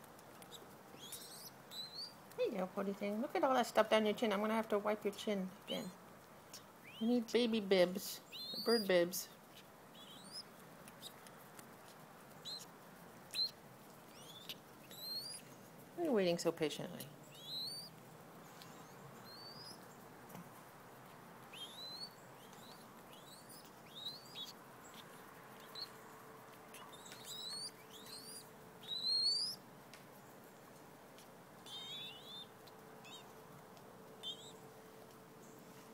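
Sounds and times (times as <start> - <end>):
dove fledglings begging cheeps: 0.5 - 2.2, 5.6 - 5.9, 6.8 - 7.3, 8.2 - 9.2, 9.9 - 11.2, 12.4 - 12.7, 13.3 - 15.5, 17.2 - 18.0, 18.7 - 19.8, 21.5 - 25.9, 26.7 - 29.6, 31.6 - 33.3, 34.2 - 34.6.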